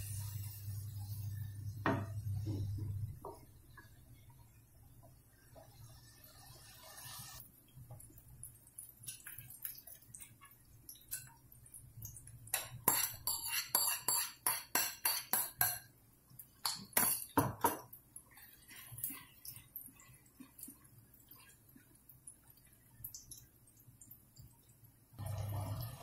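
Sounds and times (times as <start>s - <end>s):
utensil clinking against glass bowl: 12.5s - 15.9s, 16.6s - 17.9s.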